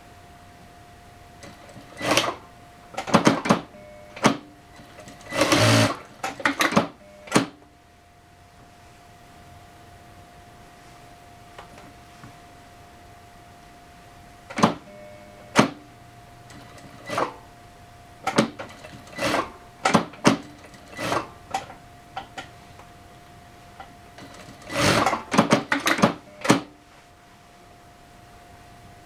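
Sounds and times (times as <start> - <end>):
faint steady hum: 0.0 - 29.0
sewing machine stitching: 1.4 - 2.4, 3.0 - 7.5, 14.5 - 14.8, 16.5 - 17.4, 18.2 - 21.7, 24.2 - 26.7.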